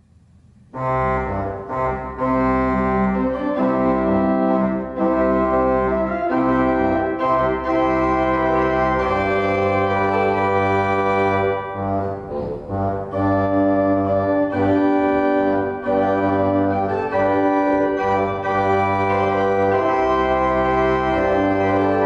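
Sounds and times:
pipe organ playing hymn: 0.7s - 22.0s.

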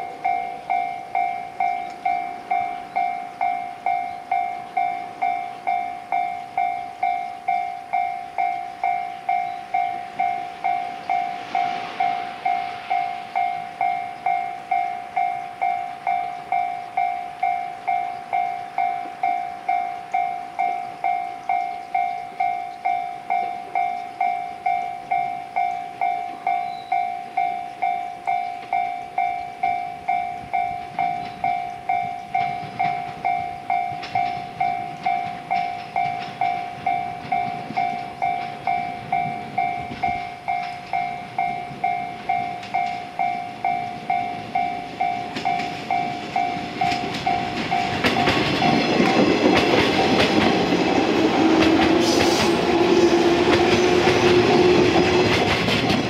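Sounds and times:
level crossing bell ringing: 0.0s - 51.2s
train wheels clattering: 27.3s - 56.0s
train motor hum: 28.6s - 56.0s.

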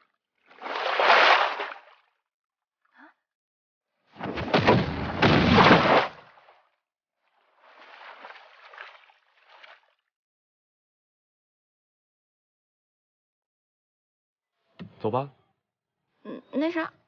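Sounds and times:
water rushing and splashing: 0.6s - 1.8s, 7.6s - 9.8s.

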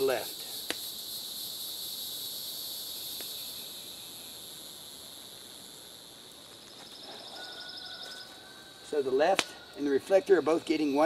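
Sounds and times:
insect chorus trilling: 0.0s - 11.0s.

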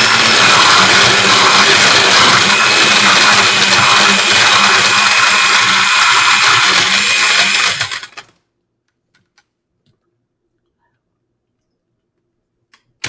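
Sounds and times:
blender motor running: 0.0s - 8.3s.

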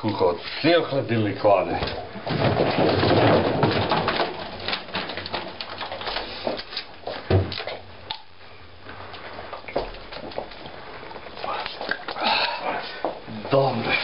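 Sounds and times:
faint low hum: 0.0s - 14.0s
refrigerator being rummaged: 1.6s - 7.5s.

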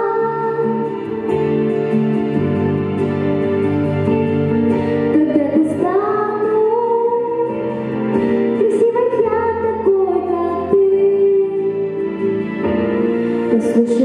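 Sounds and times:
girl singing into a microphone: 0.0s - 1.2s, 5.1s - 7.9s, 8.5s - 12.0s, 13.5s - 14.0s
instrumental accompaniment: 0.0s - 14.0s.

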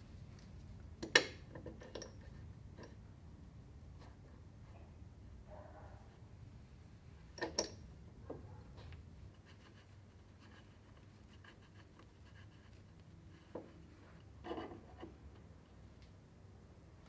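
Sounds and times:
hose fitting clicks: 7.4s - 7.8s
rubbing and scraping: 8.8s - 15.4s.

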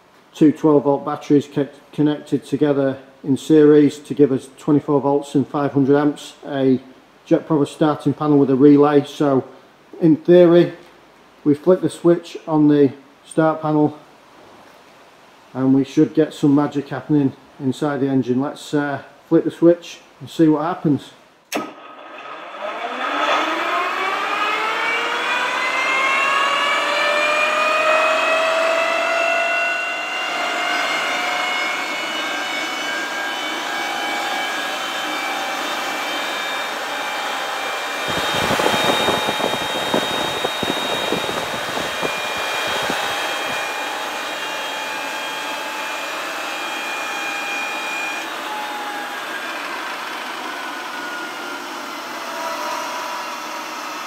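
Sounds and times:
turboprop engine whine winding up: 21.5s - 54.0s.

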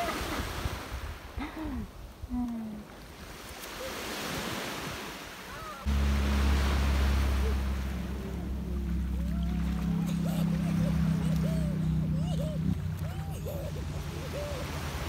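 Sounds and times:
steady low hum: 5.9s - 15.0s.

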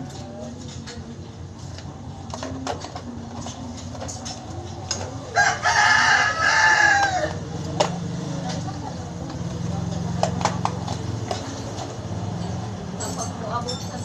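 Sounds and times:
rooster crowing: 5.3s - 7.4s.

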